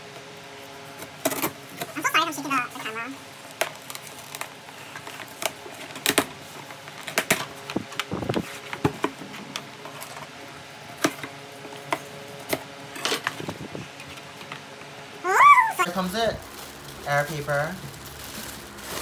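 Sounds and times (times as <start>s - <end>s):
tape peeling and rustling: 16.4s - 19.0s.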